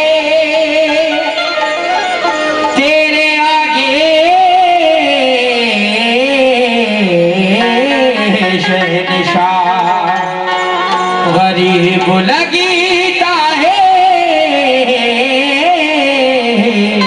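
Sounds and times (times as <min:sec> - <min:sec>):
man singing melismatic phrases: 0:00.0 - 0:10.4, 0:11.2 - 0:17.0
harmonium chords: 0:00.0 - 0:17.0.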